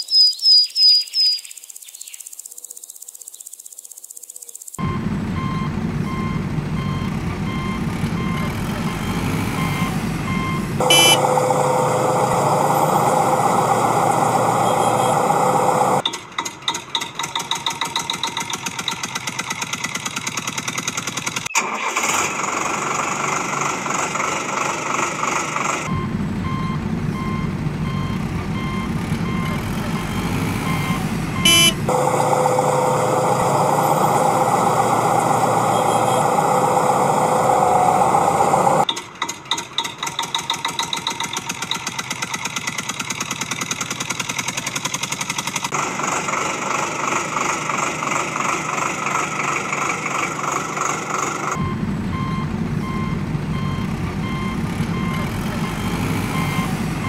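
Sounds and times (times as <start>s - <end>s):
reversing alarm beeping: 4.8s - 16.0s, 25.9s - 38.8s, 51.5s - 57.0s
engine idling chugging: 4.8s - 57.0s
loud engine running: 4.8s - 57.0s.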